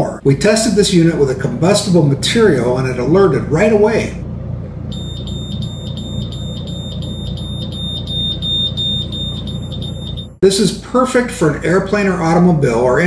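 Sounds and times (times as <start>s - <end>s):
high-pitched alarm beeps: 4.9s - 10.4s.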